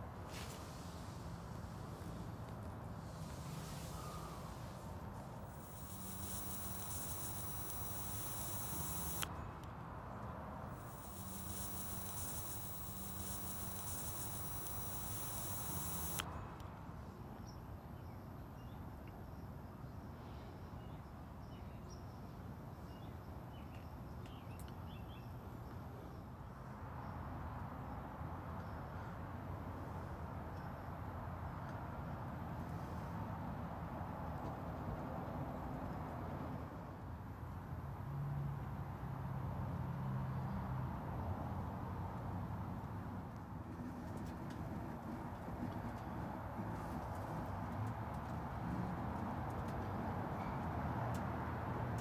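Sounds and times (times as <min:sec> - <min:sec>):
electric arc lighter buzzing: 0:05.4 - 0:09.2, 0:10.7 - 0:16.2.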